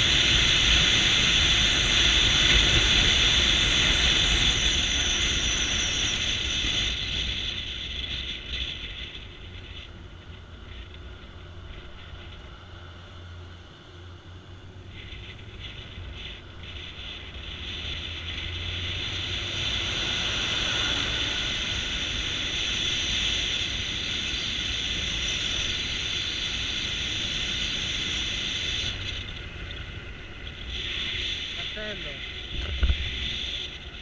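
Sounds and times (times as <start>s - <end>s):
wind rushing over microphone: 0.0s - 13.4s, 14.5s - 34.0s
motorcycle engine hum: 0.0s - 34.0s.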